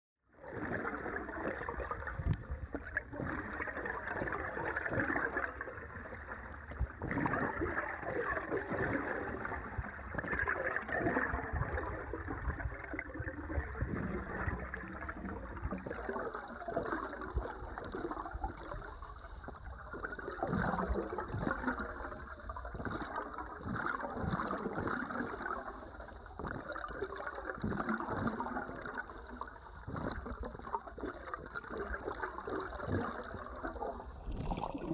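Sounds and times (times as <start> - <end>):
muffled churning water underwater: 0.2 - 34.9.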